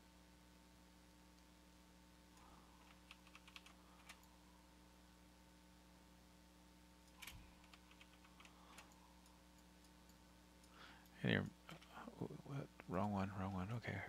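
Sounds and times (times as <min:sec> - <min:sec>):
low steady hum: 0:00.0 - 0:14.0
keyboard and mouse clicking: 0:02.8 - 0:04.3, 0:07.1 - 0:09.0.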